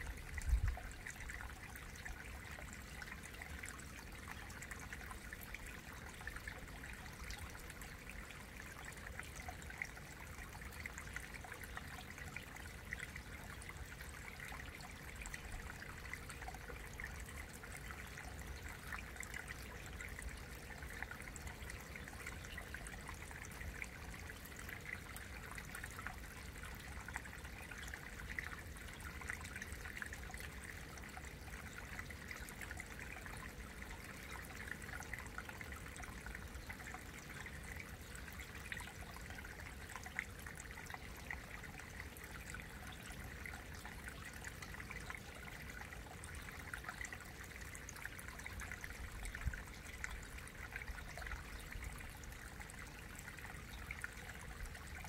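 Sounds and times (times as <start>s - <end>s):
stream trickling over rock: 0.0s - 55.0s.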